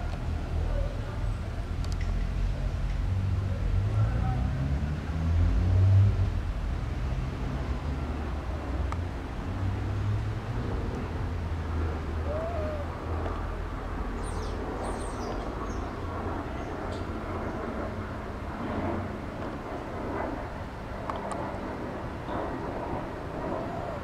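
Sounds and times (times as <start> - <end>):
rising and falling bird call: 12.2 - 13.2, 23.6 - 24.0.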